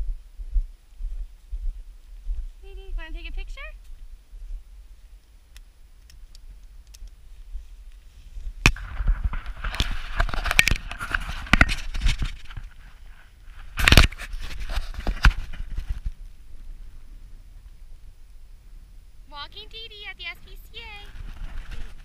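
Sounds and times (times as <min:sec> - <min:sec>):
camera handling scraping: 0:08.9 - 0:12.8, 0:13.7 - 0:16.1.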